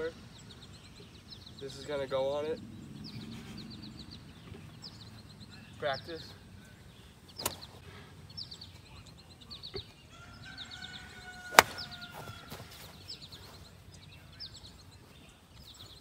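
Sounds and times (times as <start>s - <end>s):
birds chirping: 0.0s - 16.0s
golf club striking ball: 11.5s - 12.0s.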